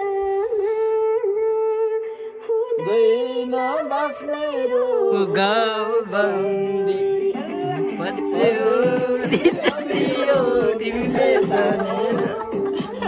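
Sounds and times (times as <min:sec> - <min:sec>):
song with held sung note: 0:02.8 - 0:13.0.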